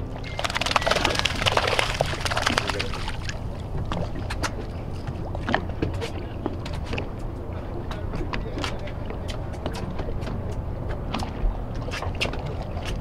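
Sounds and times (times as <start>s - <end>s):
low steady rumble: 0.0s - 13.0s
water splashing at boat side: 0.1s - 7.1s.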